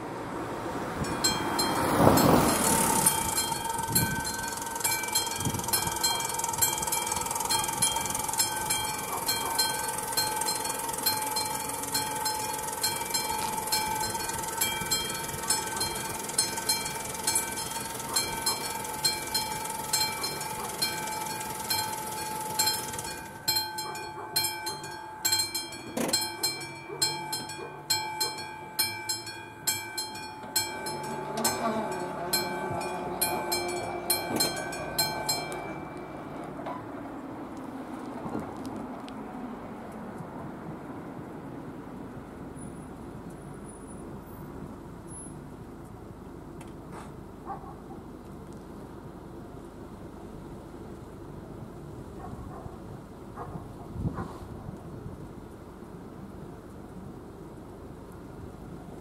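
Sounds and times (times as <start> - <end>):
level crossing bell ringing: 1.0 - 36.6.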